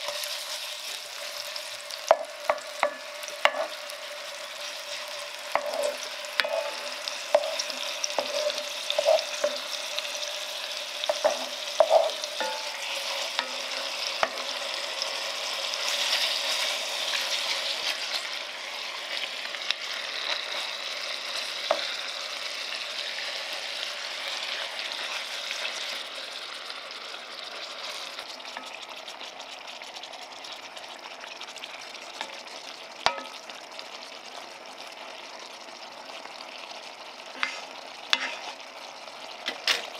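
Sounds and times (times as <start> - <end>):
meat and onion sizzling: 0.0 - 39.9
wooden spatula knocking on pan: 2.1 - 3.7, 11.1 - 12.8.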